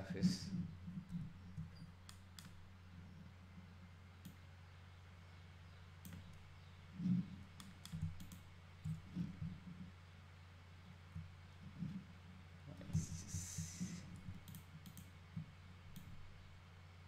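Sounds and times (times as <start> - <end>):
steady low hum: 0.0 - 17.0
mouse and keyboard clicks: 6.0 - 6.4, 7.0 - 9.6, 14.1 - 15.1.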